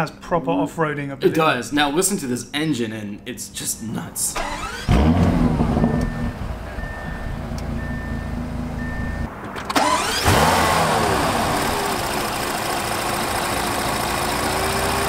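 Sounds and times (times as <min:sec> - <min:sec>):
car engine idling and revving: 0:04.4 - 0:15.0
faint repeating beep: 0:05.8 - 0:09.3.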